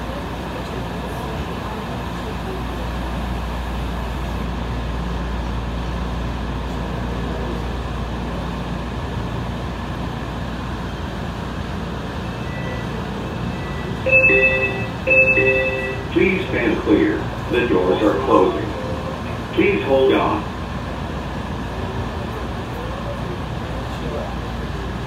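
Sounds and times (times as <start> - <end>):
train car interior hum: 0.0 - 25.0
electronic door chime: 13.9 - 16.3.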